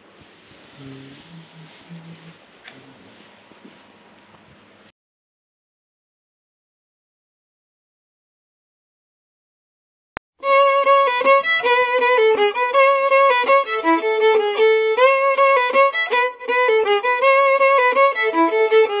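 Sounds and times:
fiddle melody: 0:10.4 - 0:19.0.

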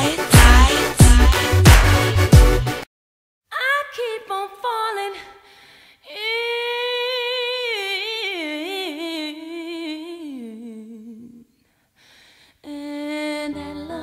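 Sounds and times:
person singing wordless: 0:00.0 - 0:01.7.

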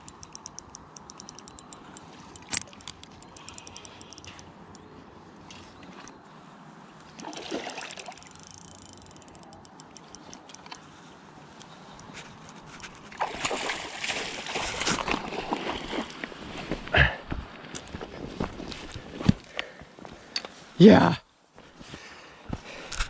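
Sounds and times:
water splashing: 0:07.2 - 0:08.3, 0:13.1 - 0:16.0.

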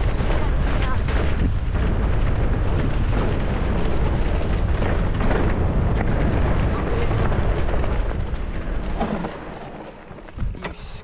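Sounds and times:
wind buffeting microphone: 0:00.0 - 0:10.8
tyres crunching on loose stones: 0:00.0 - 0:11.0.

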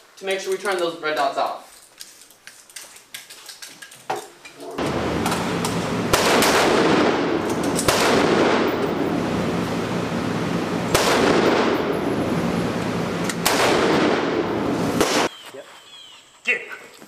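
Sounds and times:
gunshots with echo: 0:04.8 - 0:15.3.

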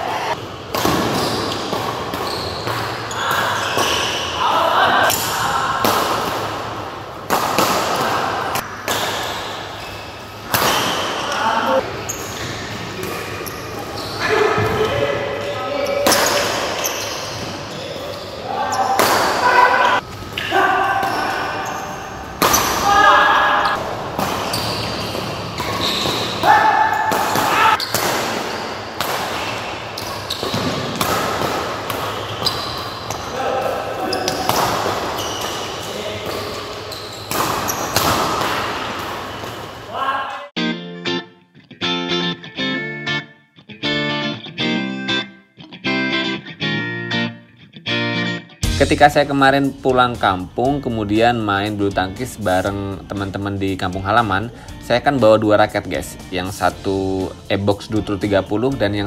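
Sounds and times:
shoe squeaks on court floor: 0:00.8 - 0:04.4, 0:08.9 - 0:15.1, 0:15.7 - 0:19.2, 0:21.0 - 0:38.6
racket striking shuttlecock: 0:05.1 - 0:09.6, 0:22.3 - 0:39.8.

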